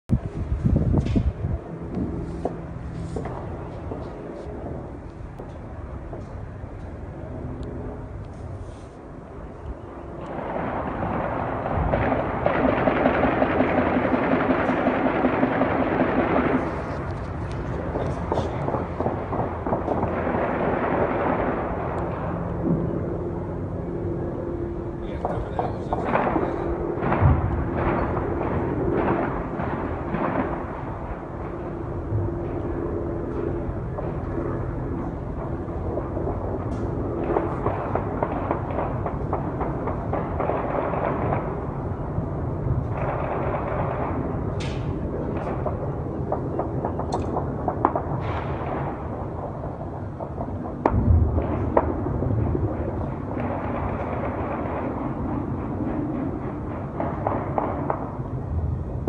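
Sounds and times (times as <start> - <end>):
steady low rumble: 0.1 - 59.0
distant gunshots with echo: 10.2 - 17.0, 17.8 - 23.0, 25.1 - 42.0, 42.9 - 58.5.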